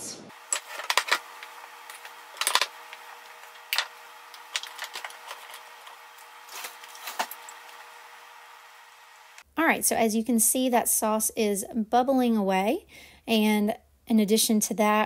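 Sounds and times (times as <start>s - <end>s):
steady low hum: 0.0s - 9.6s.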